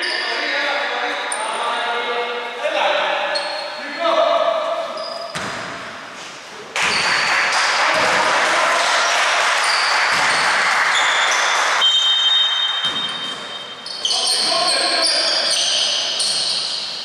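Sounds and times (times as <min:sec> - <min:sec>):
echoing voices in a hall: 0:00.0 - 0:17.0
shoes squeaking: 0:03.2 - 0:04.0, 0:04.6 - 0:07.4, 0:09.6 - 0:17.0
basketball bouncing on wooden floor: 0:12.8 - 0:13.5.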